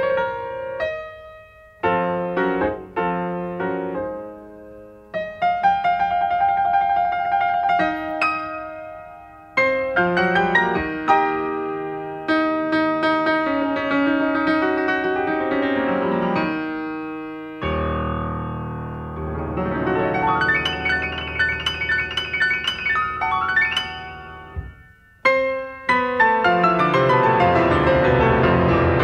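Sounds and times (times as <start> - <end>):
slow piano music: 0.0 - 29.0.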